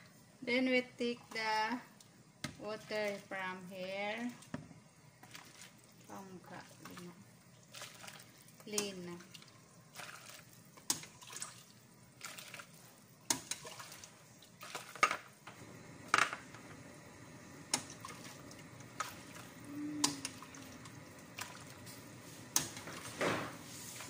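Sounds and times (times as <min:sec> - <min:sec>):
liquid splashing into bowl: 0:05.2 - 0:15.2.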